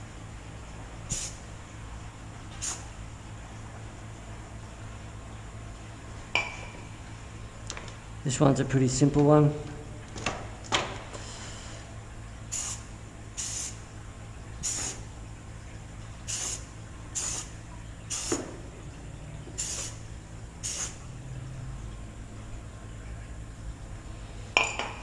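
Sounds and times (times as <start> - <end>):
spray paint can hissing: 1.1 - 1.4, 2.6 - 2.8, 12.5 - 13.8, 16.3 - 17.5, 18.1 - 18.4, 19.6 - 20.0, 20.6 - 21.0.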